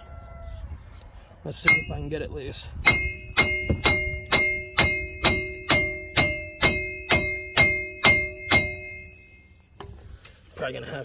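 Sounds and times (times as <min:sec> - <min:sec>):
hammer striking metal: 0:01.6 - 0:02.1, 0:02.8 - 0:09.4.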